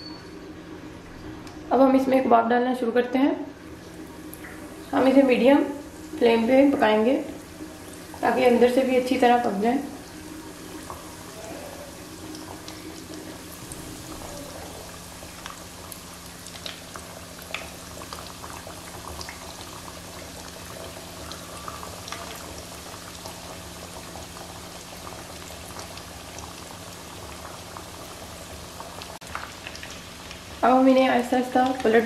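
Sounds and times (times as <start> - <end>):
food frying in oil: 3.6 - 32.0
oil popping and crackling: 10.5 - 32.0.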